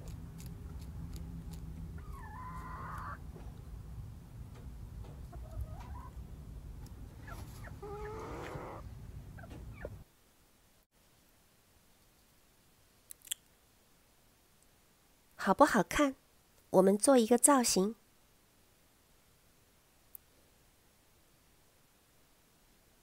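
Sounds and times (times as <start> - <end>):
low background noise: 0.0 - 23.0
chickens clucking: 2.0 - 3.2, 5.1 - 6.2, 7.2 - 10.1.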